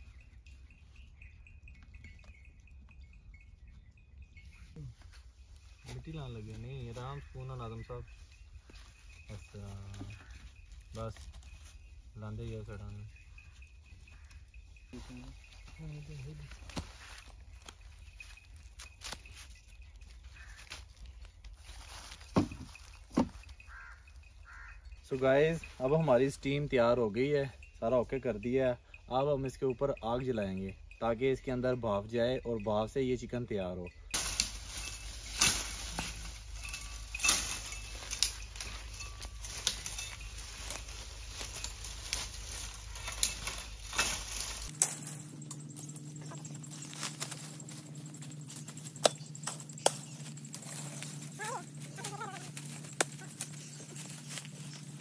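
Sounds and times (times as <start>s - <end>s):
dry leaves crackling and rustling: 4.8s - 26.4s, 34.1s - 55.0s
sticks snapping: 48.8s - 50.7s, 52.0s - 54.5s.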